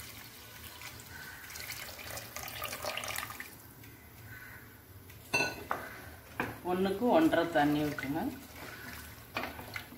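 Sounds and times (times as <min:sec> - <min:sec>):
milk pouring and splashing: 0:00.0 - 0:03.7, 0:07.5 - 0:09.9.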